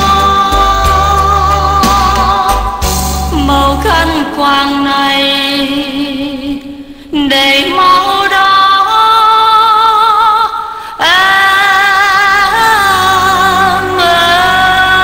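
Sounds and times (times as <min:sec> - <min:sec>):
backing music: 0:00.0 - 0:04.6, 0:12.0 - 0:15.0
woman singing slow song: 0:00.0 - 0:15.0.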